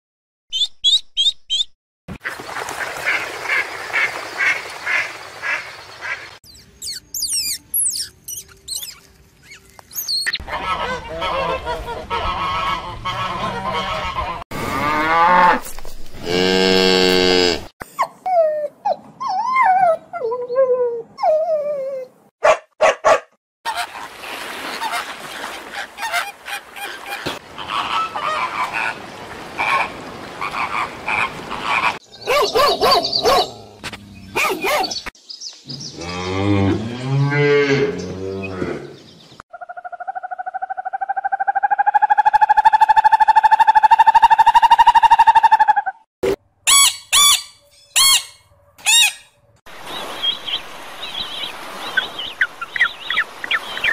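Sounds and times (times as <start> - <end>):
whistling animal chirps: 6.5 - 10.4
flamingos honking and chattering: 10.4 - 14.4
cow mooing: 16.2 - 17.7.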